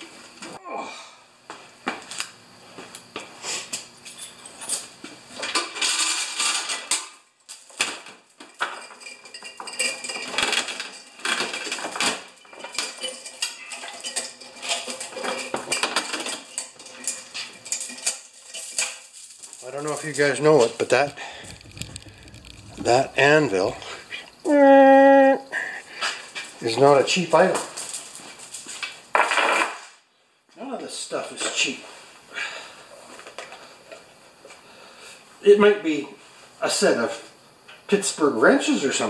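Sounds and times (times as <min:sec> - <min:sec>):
steel chain rattling and clinking: 0:08.4 - 0:24.2.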